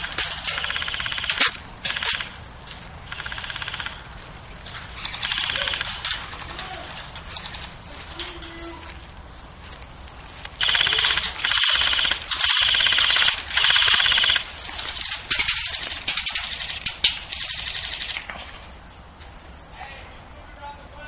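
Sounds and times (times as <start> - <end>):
airsoft full-auto bursts: 0.0 - 2.4, 3.1 - 4.1, 5.0 - 6.7, 10.6 - 18.3.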